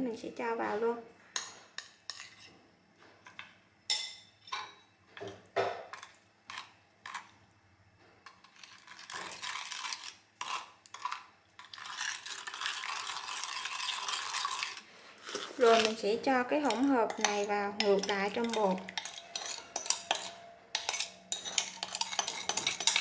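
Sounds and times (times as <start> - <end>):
spoon stirring scraping sloshing: 1.4 - 2.6, 5.9 - 7.4, 8.3 - 23.0
spoons tapping ceramic bowl: 16.6 - 23.0.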